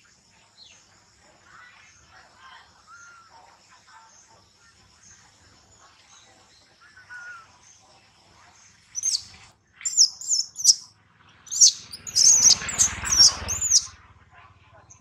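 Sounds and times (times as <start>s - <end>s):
baby monkey crying: 9.0s - 9.2s, 9.9s - 10.8s, 11.5s - 13.9s.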